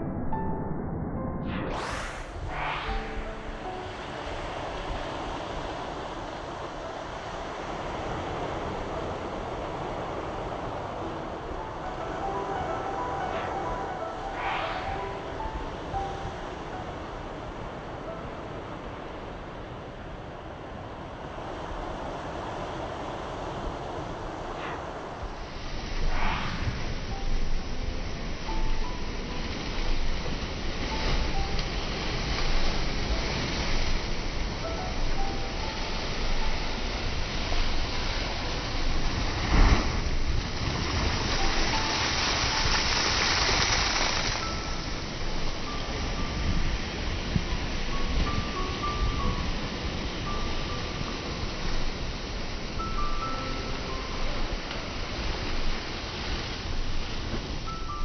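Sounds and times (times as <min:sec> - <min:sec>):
ocean surf: 0:01.5 - 0:58.0
hissing wash of foam: 0:12.1 - 0:16.6, 0:24.5 - 0:28.5, 0:39.8 - 0:45.0.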